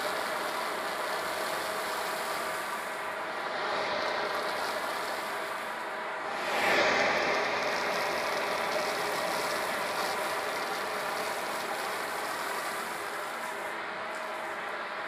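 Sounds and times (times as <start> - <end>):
vacuum cleaner running: 0.0 - 15.0.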